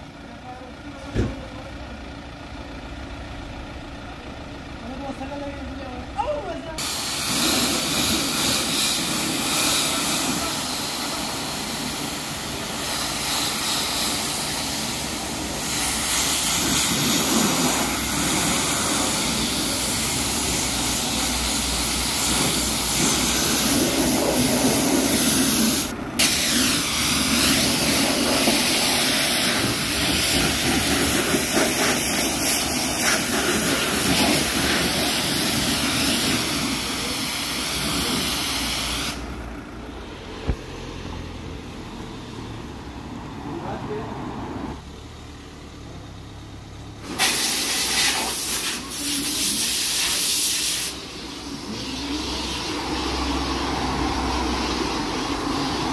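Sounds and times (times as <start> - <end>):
pressure washer spraying water: 6.8 - 39.3, 47.0 - 55.9.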